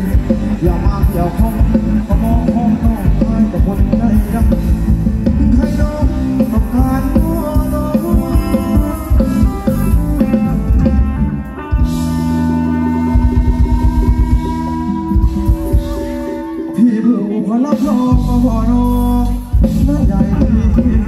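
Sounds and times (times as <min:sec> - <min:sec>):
fast steady drum beat: 0:00.0 - 0:11.2, 0:11.8 - 0:16.4, 0:17.7 - 0:21.0
live band dance music: 0:00.0 - 0:21.0.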